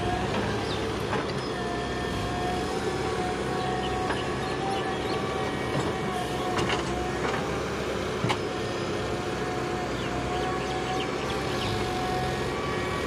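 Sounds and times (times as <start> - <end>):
diesel engine running under load: 0.0 - 13.0.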